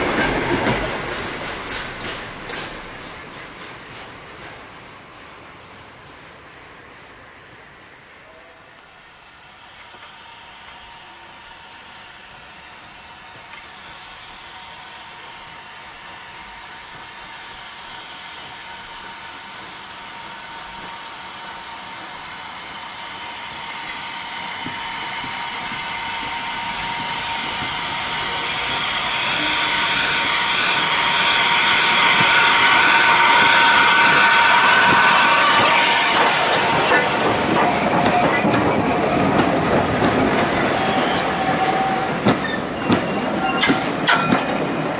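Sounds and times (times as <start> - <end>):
wheels clattering on rail joints: 0.0 - 6.5, 24.5 - 44.9
steam locomotive passing: 0.0 - 44.9.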